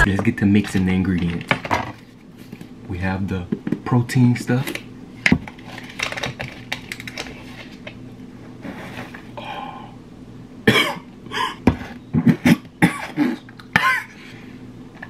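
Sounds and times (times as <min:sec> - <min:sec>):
person coughing: 0:10.6 - 0:14.2.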